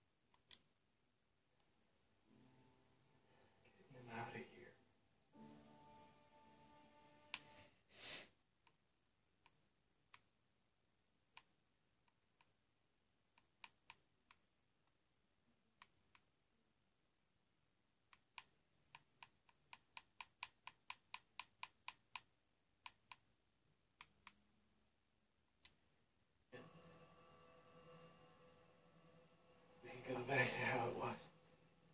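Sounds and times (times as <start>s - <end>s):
tv programme sound: 2.2s - 8.8s, 26.6s - 31.9s.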